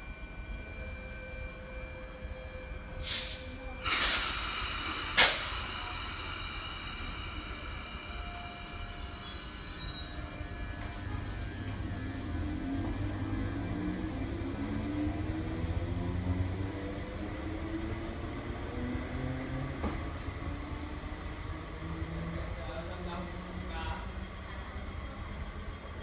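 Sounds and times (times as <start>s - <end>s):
train compressed-air hiss: 3.0s - 8.8s.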